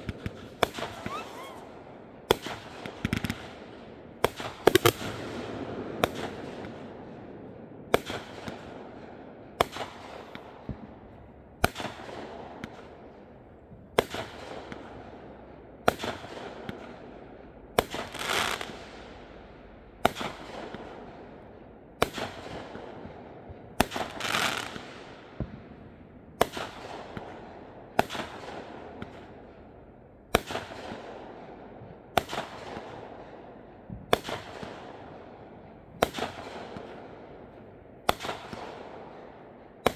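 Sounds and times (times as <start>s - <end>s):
fireworks banging: 0.0s - 3.6s.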